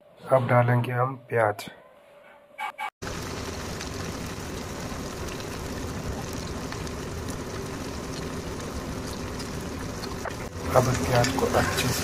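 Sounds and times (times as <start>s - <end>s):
onions sizzling in hot oil: 3.0s - 12.0s.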